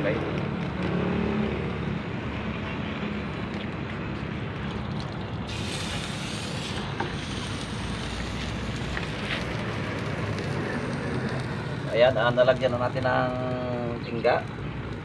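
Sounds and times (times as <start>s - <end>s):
steady rushing noise: 0.0s - 15.0s
hot metal hissing in water: 5.5s - 13.3s.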